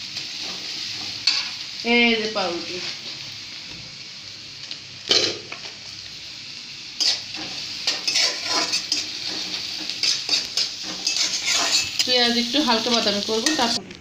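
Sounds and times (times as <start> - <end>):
onions sizzling in hot oil: 0.0 - 14.0
metal spatula scraping pan: 7.0 - 12.2.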